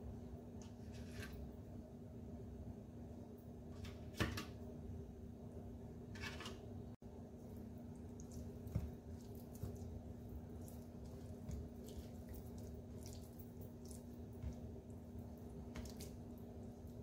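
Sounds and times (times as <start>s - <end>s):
low steady hum: 0.0s - 17.0s
hand squishing yoghurt into chicken: 7.6s - 17.0s.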